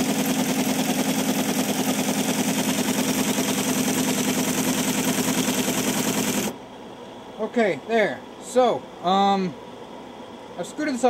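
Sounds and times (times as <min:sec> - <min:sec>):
tape punch mechanical clatter: 0:00.0 - 0:06.5
machine motor hum: 0:00.0 - 0:06.7.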